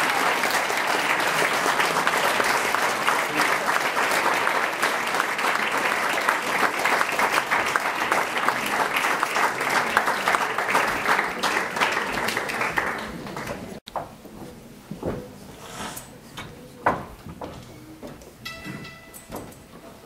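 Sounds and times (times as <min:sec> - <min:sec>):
audience applauding: 0:00.0 - 0:13.8.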